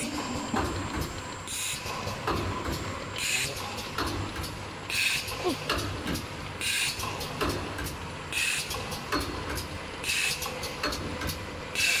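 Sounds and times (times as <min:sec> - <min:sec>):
machine clicks and clacks: 0:00.0 - 0:12.0
pneumatic air hiss: 0:04.9 - 0:05.5, 0:06.6 - 0:07.2, 0:08.3 - 0:08.8, 0:10.0 - 0:10.5.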